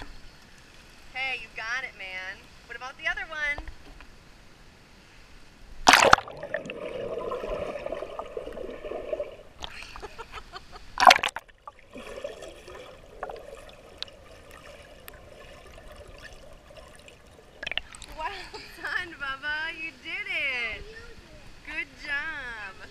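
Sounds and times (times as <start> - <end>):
child splashing into pool: 5.9 - 10.0, 11.0 - 18.3
underwater bubbling and gurgling: 5.9 - 10.0, 11.0 - 18.2.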